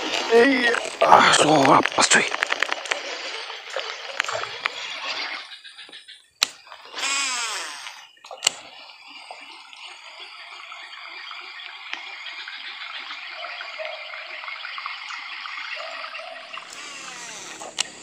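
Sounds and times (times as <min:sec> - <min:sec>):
fishing reel ticking when cranked: 0:06.6 - 0:08.6
spool whirring: 0:06.6 - 0:11.6, 0:15.8 - 0:18.0.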